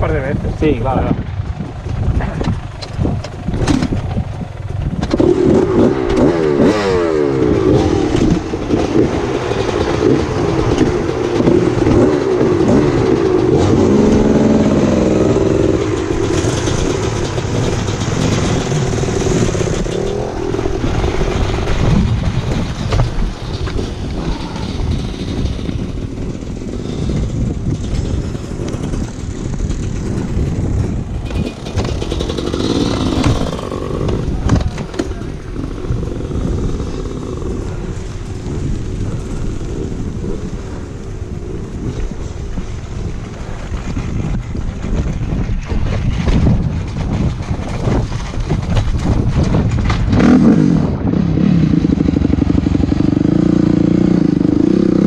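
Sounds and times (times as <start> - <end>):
noisy rumble with small knocks: 0.0 - 54.6
dirt bike engine revving: 5.1 - 41.7, 49.4 - 55.0.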